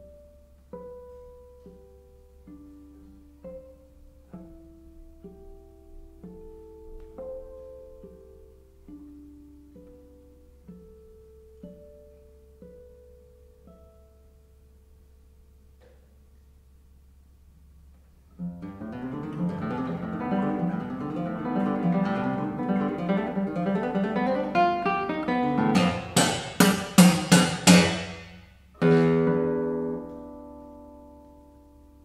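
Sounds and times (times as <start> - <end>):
classical guitar playing: 0.0 - 32.0.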